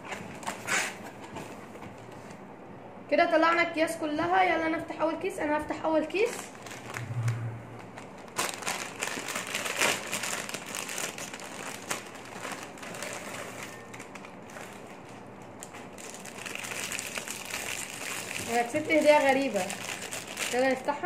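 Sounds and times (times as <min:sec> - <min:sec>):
foil snack bag crinkling: 0:06.2 - 0:07.0, 0:08.0 - 0:21.0
plastic wrapper crackling: 0:06.2 - 0:07.1, 0:07.8 - 0:21.0.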